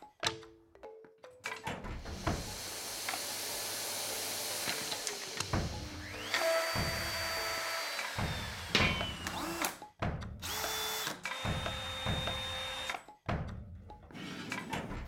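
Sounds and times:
router cutting wood: 2.2s - 9.7s, 10.4s - 12.9s
cordless drills spinning: 2.5s - 9.7s, 10.4s - 12.9s.

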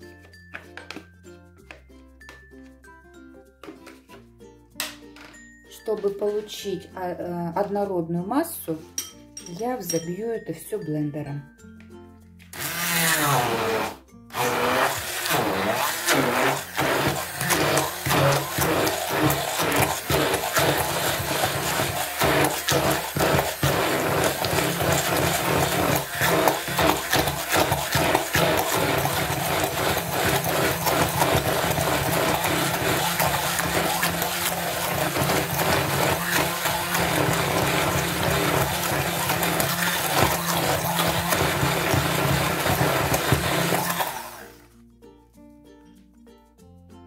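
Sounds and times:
faint background music: 0.0s - 36.2s, 40.3s - 47.0s
immersion blender running in batter: 12.6s - 44.6s.

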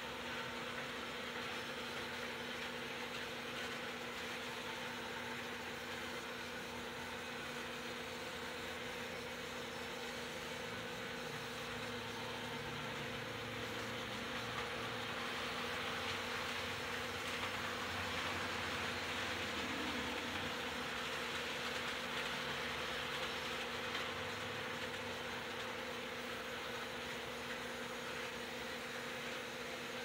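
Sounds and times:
model train motor hum: 0.0s - 30.0s.

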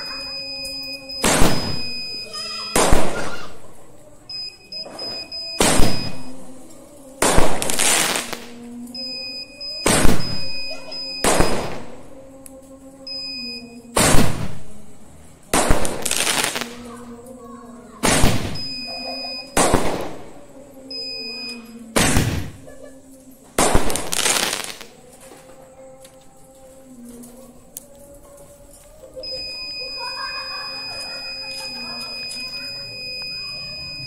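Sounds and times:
high electronic beep: 0.0s - 2.7s, 4.3s - 6.3s, 9.0s - 11.7s, 13.1s - 13.8s, 18.6s - 19.6s, 20.9s - 21.7s, 29.2s - 34.0s
fireworks bangs with hiss: 1.1s - 3.6s, 5.6s - 6.4s, 7.2s - 8.6s, 9.8s - 12.1s, 13.9s - 14.9s, 15.5s - 16.9s, 18.0s - 18.9s, 19.5s - 20.4s, 22.0s - 22.7s, 23.6s - 25.4s.

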